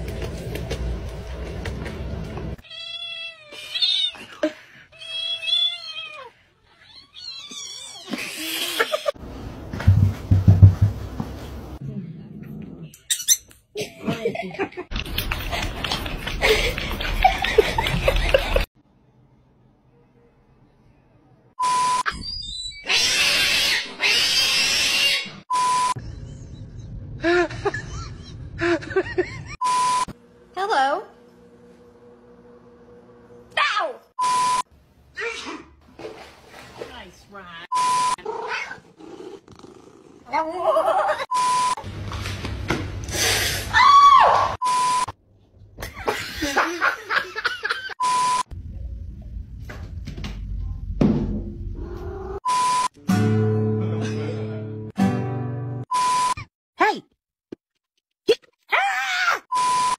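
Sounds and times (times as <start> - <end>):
person laughing and snickering: 8.1 - 9.2, 13.8 - 18.7, 26.0 - 29.6
short steady beep tones: 29.6 - 30.1.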